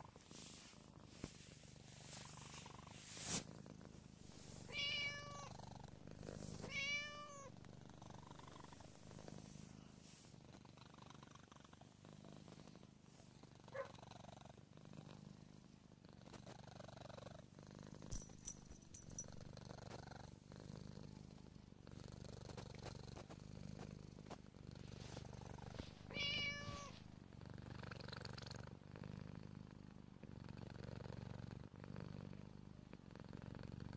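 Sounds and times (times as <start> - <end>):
cat purring: 0.0 - 33.9
cat meowing: 4.7 - 5.5, 6.6 - 7.5, 26.1 - 27.0.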